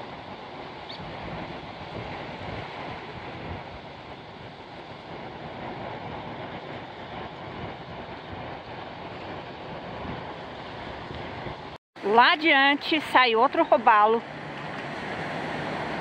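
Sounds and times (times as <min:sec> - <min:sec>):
wind buffeting microphone: 0:00.0 - 0:11.8
ocean surf breaking: 0:00.0 - 0:16.0.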